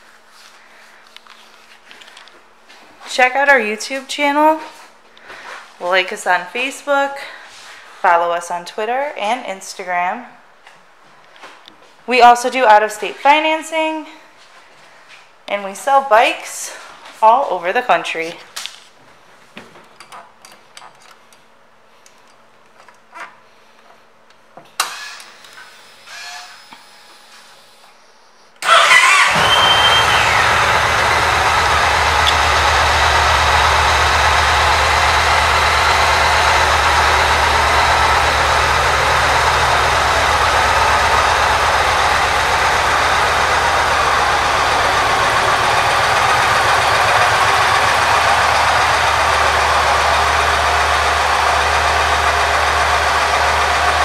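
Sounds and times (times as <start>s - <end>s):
motorcycle engine starting and idling: 28.6s - 54.0s.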